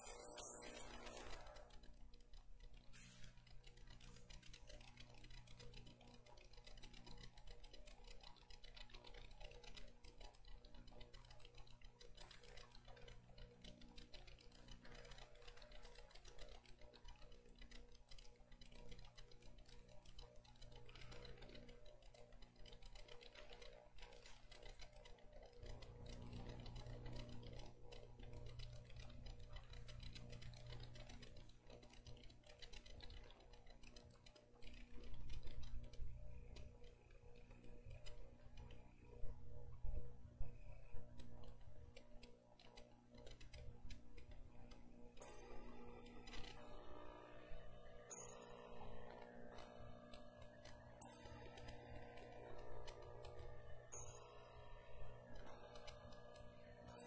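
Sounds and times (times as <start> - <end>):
faint clicks: 0.0 - 57.0
steady low hum: 0.0 - 57.0.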